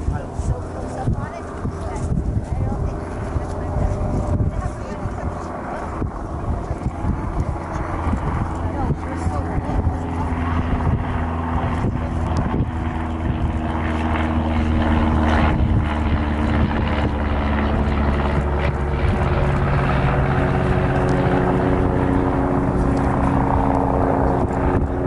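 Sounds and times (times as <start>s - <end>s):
droning hum: 0.0s - 25.0s.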